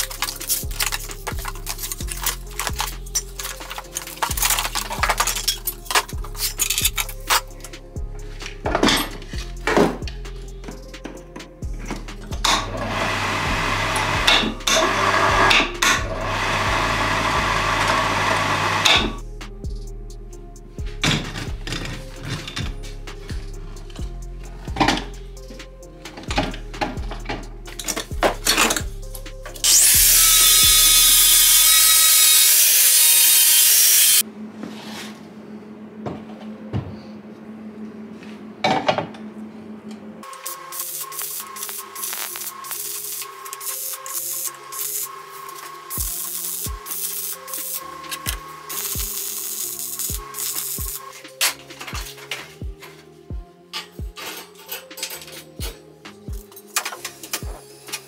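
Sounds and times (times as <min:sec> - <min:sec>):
background music: 0:00.0 - 0:58.0
angle grinder cutting steel: 0:12.5 - 0:19.2, 0:29.6 - 0:34.2, 0:40.3 - 0:51.0
electric hoist motor running: 0:12.6 - 0:19.2, 0:29.6 - 0:34.2.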